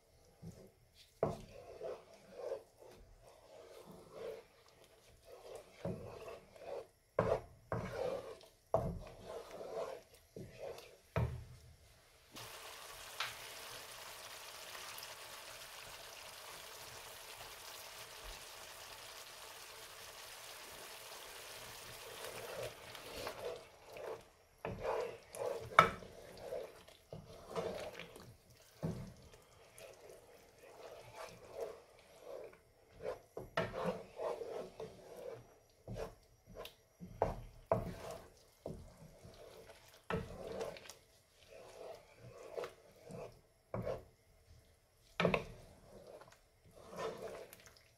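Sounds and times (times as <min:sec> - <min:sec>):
wooden spoon scraping sauce: 0:00.1 - 0:11.3, 0:12.4 - 0:47.9
sauce sizzling in a frying pan: 0:12.3 - 0:24.2.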